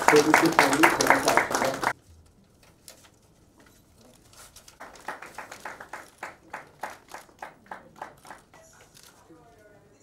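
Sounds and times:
people clapping hands: 0:00.0 - 0:02.0, 0:04.8 - 0:08.9.

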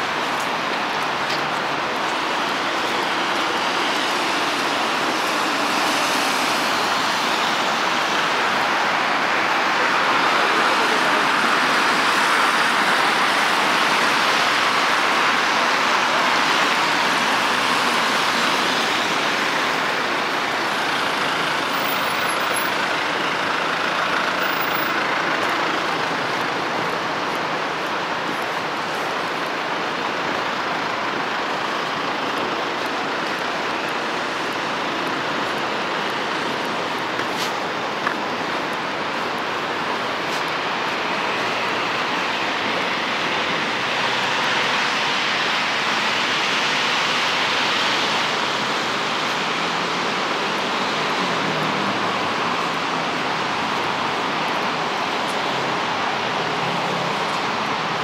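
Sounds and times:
tyres hissing on wet asphalt: 0:00.0 - 0:58.0.

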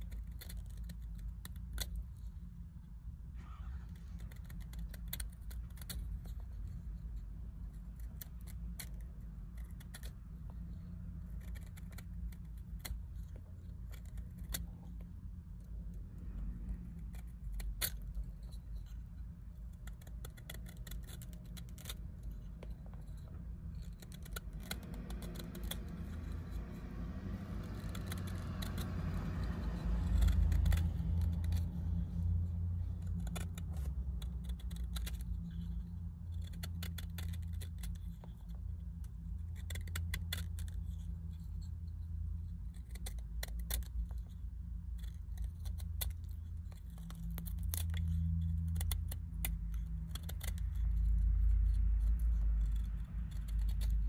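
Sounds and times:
knife scraping wood: 0:16.6 - 0:54.0
low rumble: 0:47.2 - 0:54.0.

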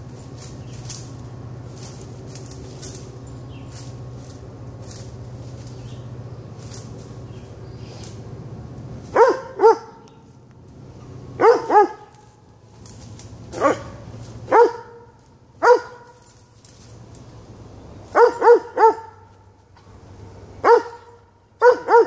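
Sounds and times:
dog barking: 0:09.1 - 0:10.0, 0:11.4 - 0:12.1, 0:13.5 - 0:16.2, 0:18.1 - 0:19.3, 0:20.6 - 0:22.0.

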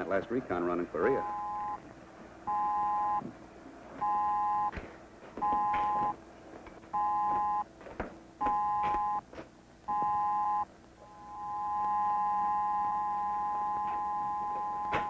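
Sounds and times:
footsteps: 0:04.7 - 0:10.1.

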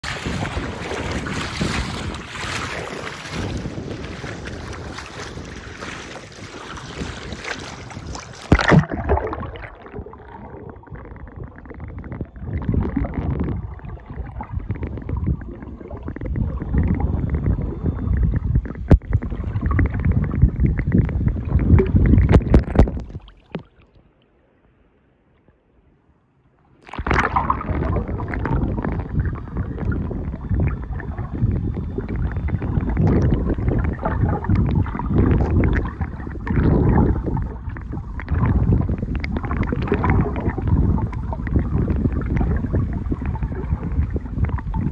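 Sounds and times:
loud splash: 0:00.0 - 0:11.0, 0:26.8 - 0:29.0
wind on microphone: 0:00.0 - 0:23.3, 0:26.9 - 0:44.9
muffled underwater rumbling: 0:00.0 - 0:23.9, 0:26.7 - 0:44.9
sea water sloshing: 0:00.0 - 0:24.3, 0:26.6 - 0:44.9.

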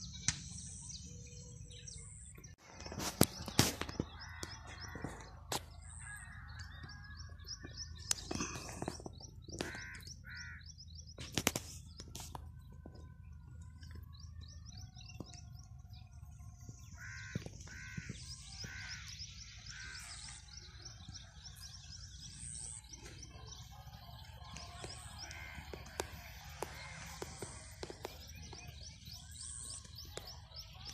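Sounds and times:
small birds chirping: 0:00.0 - 0:30.9
harsh cawing bird calls: 0:03.0 - 0:11.2, 0:16.5 - 0:30.9.

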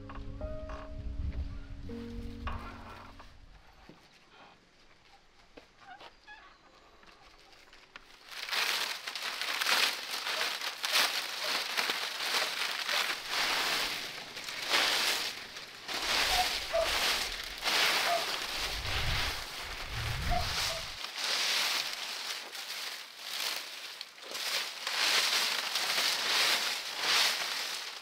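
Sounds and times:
twigs rustling and crackling: 0:07.0 - 0:28.0.

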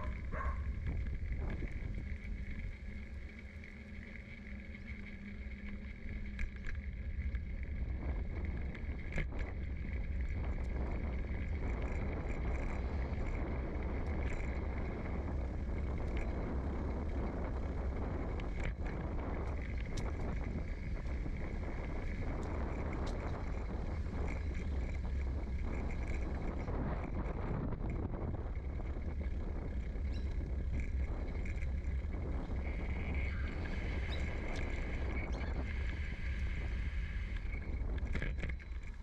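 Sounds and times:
bicycle road rumble: 0:00.0 - 0:39.0.

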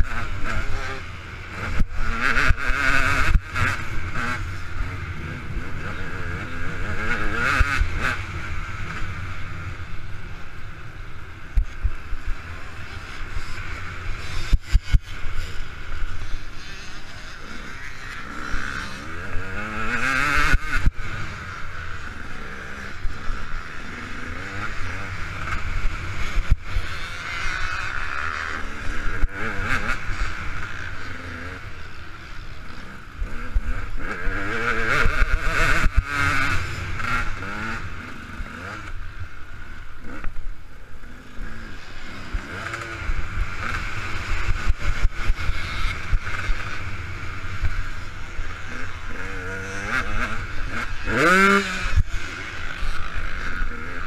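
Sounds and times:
two-stroke motorcycle engine revving: 0:00.0 - 0:54.0.

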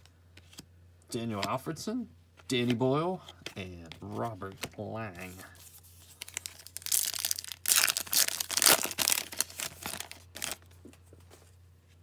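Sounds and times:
wrapper crinkling: 0:05.6 - 0:10.7.

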